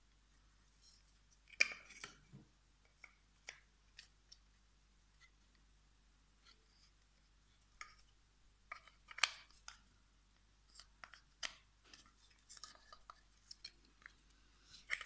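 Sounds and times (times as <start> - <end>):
plastic model parts clicking: 14.7 - 15.0.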